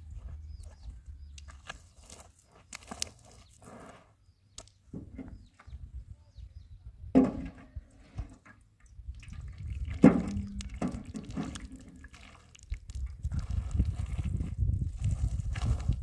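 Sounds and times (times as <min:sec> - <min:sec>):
liquid splashing: 0:09.2 - 0:14.2.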